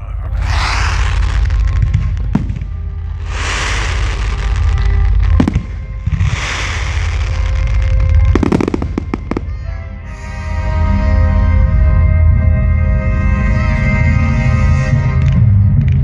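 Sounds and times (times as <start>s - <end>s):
music with sustained notes: 0.0s - 16.0s
fireworks hissing: 0.3s - 9.7s
fireworks bangs: 0.3s - 10.2s.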